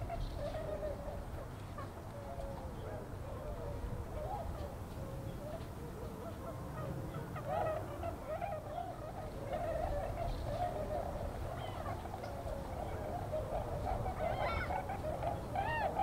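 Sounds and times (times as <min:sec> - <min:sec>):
swans honking: 0:06.2 - 0:16.0.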